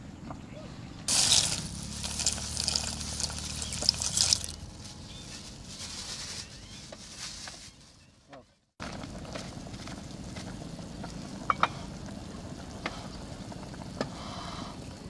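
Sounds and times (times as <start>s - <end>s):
pasta pouring into broth: 1.1s - 4.6s
crackling and splashing: 1.1s - 4.9s
plastic bag rustling: 1.1s - 8.2s.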